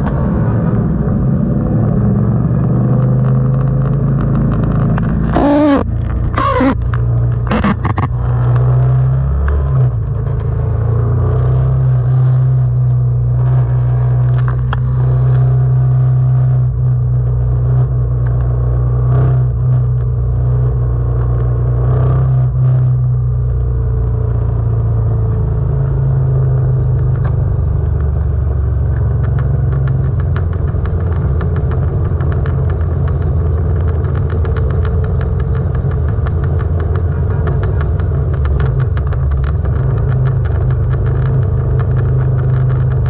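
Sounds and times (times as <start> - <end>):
motorcycle engine running: 0.0 - 43.0.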